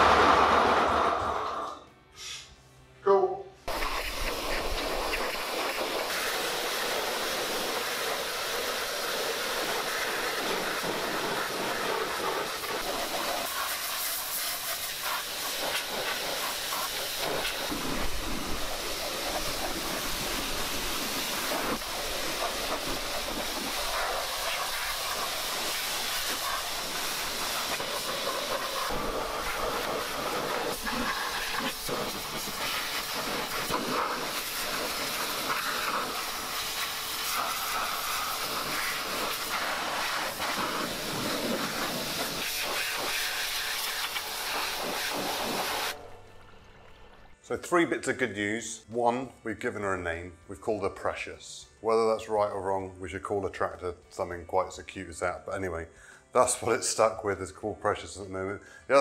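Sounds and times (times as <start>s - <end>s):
pressure washer spraying: 3.7s - 46.4s.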